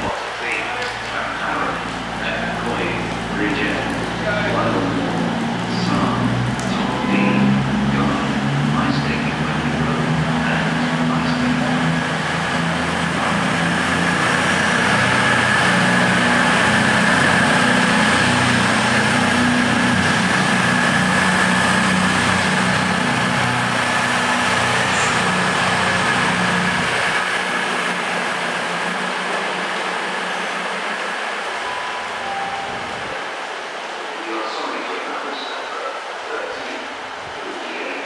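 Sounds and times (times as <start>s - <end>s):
steady whine: 0.0s - 36.7s
train diesel engines running: 0.0s - 38.0s.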